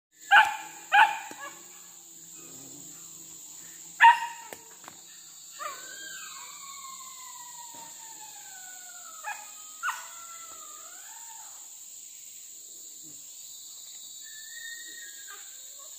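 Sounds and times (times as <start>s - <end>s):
high insect drone: 0.1s - 15.9s
dogs barking: 0.3s - 1.7s, 4.0s - 4.5s
dog howling: 5.6s - 11.6s.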